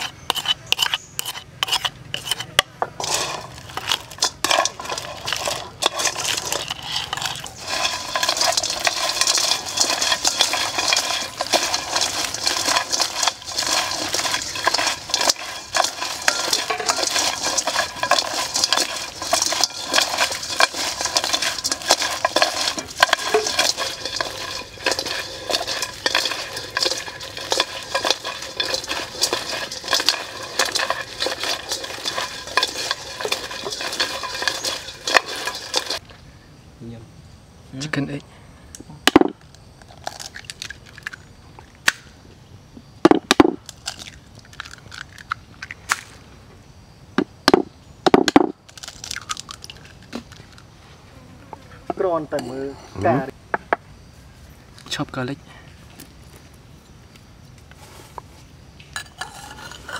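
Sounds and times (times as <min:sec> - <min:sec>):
crab shells clattering in a pan: 0:00.0 - 0:36.0, 0:39.1 - 0:41.4, 0:43.1 - 0:46.1, 0:47.5 - 0:50.7, 0:59.0 - 0:59.9.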